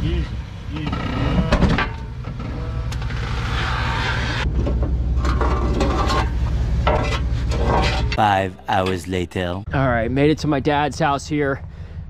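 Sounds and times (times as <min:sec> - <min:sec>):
vehicle engine idling: 0:09.7 - 0:12.0.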